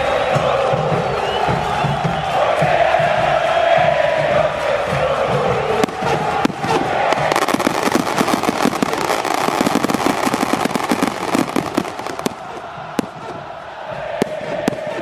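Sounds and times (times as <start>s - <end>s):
stadium crowd noise: 0.0s - 15.0s
firecrackers crackling: 5.2s - 15.0s.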